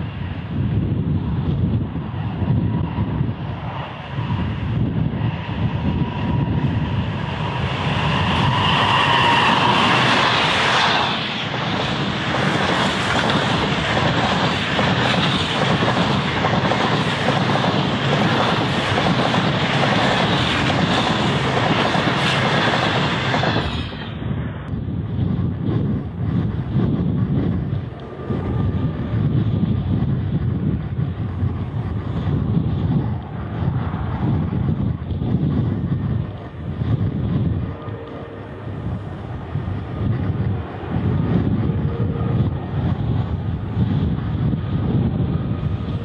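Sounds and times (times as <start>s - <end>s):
diesel locomotive engine: 0.0s - 46.0s
train wheels clickety-clack: 5.2s - 24.2s.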